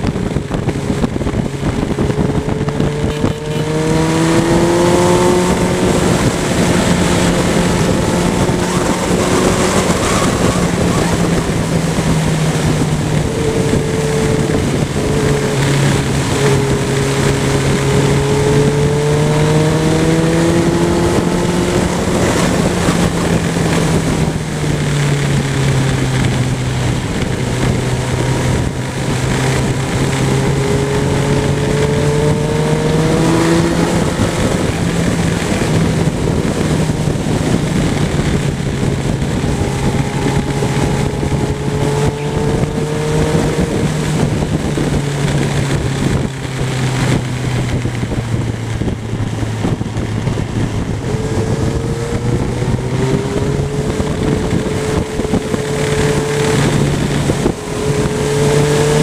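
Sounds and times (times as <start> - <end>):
motorcycle engine accelerating: 0.0 - 59.0
wind rush: 0.0 - 59.0.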